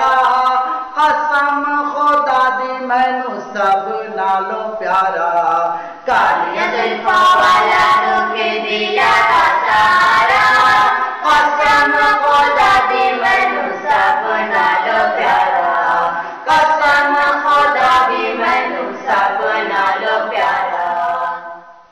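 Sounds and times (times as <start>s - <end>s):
man singing without instruments: 0.0s - 7.1s, 15.4s - 17.8s.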